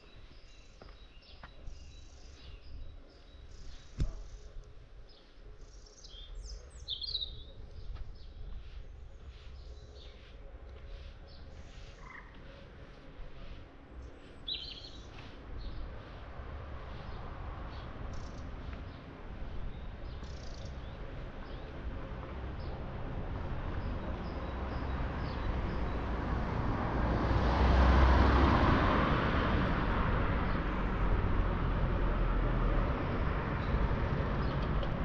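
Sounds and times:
bird chirps: 0:05.1 - 0:08.5, 0:10.9 - 0:12.6, 0:14.0 - 0:15.8, 0:17.0 - 0:19.0, 0:19.7 - 0:21.7
vehicle passing: 0:09.3 - 0:35.0.

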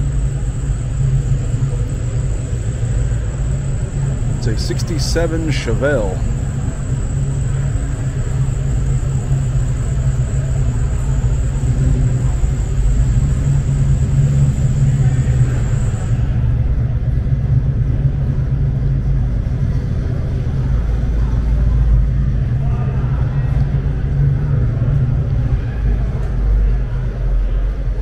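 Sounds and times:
faint high whine: 0:00.0 - 0:16.9
exhibition hall low rumble: 0:00.0 - 0:28.0.

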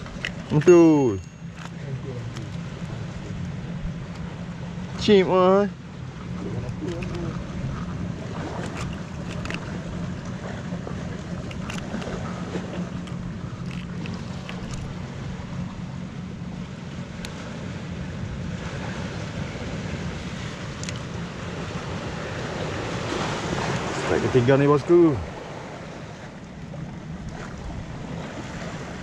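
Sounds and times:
waves washing against rocks: 0:00.0 - 0:01.2, 0:06.2 - 0:26.4, 0:27.0 - 0:29.0
steady low hum: 0:00.0 - 0:29.0
handling clicks: 0:08.6 - 0:09.7, 0:11.4 - 0:12.1.

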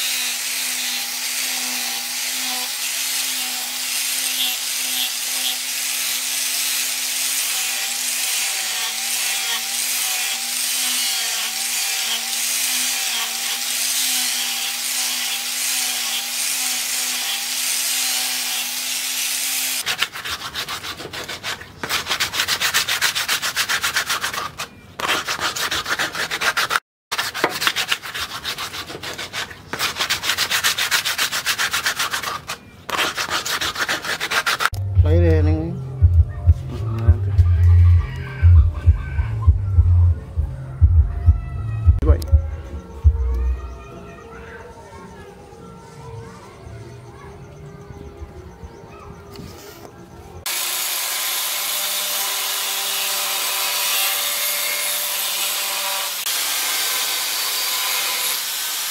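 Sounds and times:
angle grinder sanding steel: 0:00.0 - 0:34.8, 0:50.5 - 0:58.9
sandpaper rubbing wood by hand: 0:00.0 - 0:34.8.

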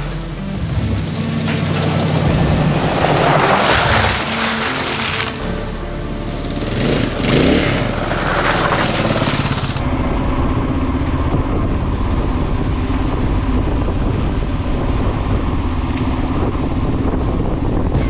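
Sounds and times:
motorcycle riding past on gravel: 0:00.0 - 0:09.8
motorcycle engine drone on board: 0:00.0 - 0:18.0.

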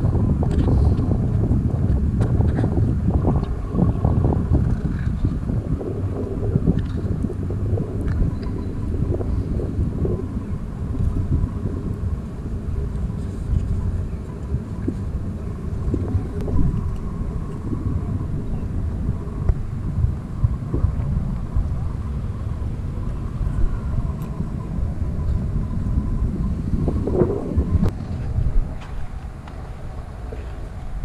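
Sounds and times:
low outdoor rumble: 0:00.0 - 0:31.0
wind buffeting microphone: 0:00.0 - 0:31.0.

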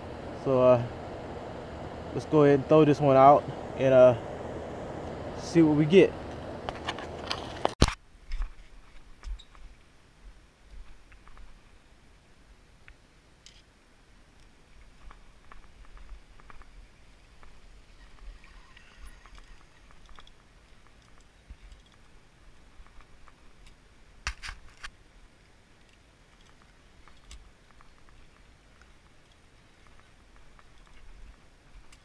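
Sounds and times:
small clicks: 0:17.4 - 0:25.0, 0:25.8 - 0:32.0.

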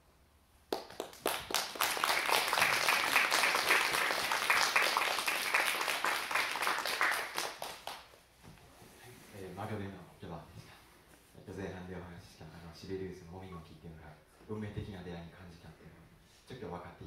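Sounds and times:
audience applauding: 0:00.7 - 0:08.1.

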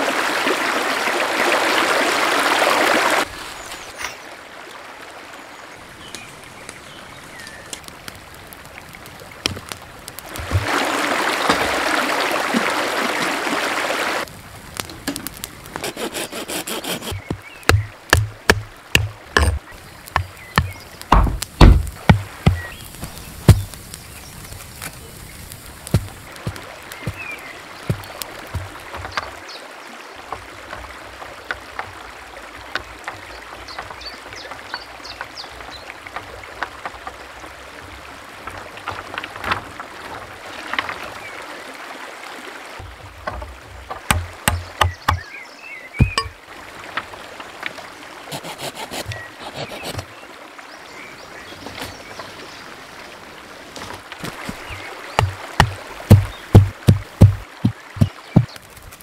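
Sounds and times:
forest stream running: 0:00.0 - 0:59.0
stake pounded into earth: 0:17.1 - 0:23.8, 0:25.6 - 0:29.2, 0:55.2 - 0:59.0
bird chirps: 0:22.4 - 0:25.4, 0:44.5 - 0:46.4.

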